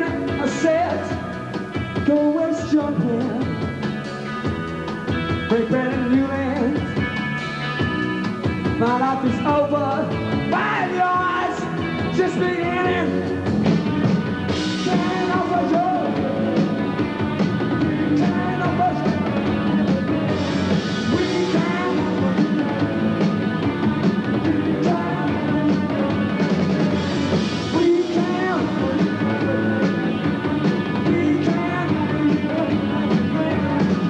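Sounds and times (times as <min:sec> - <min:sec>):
man singing: 0:00.0 - 0:01.4, 0:02.0 - 0:03.6, 0:05.5 - 0:07.0, 0:08.8 - 0:13.4, 0:14.7 - 0:16.8, 0:17.8 - 0:23.3, 0:24.0 - 0:34.0
rock band playing: 0:00.0 - 0:34.0.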